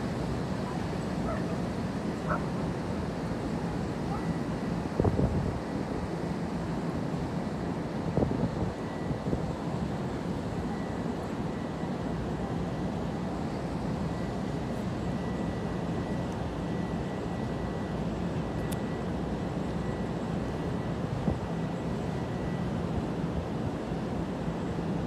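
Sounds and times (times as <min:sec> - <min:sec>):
strong wind and rain squall: 0:04.7 - 0:10.2.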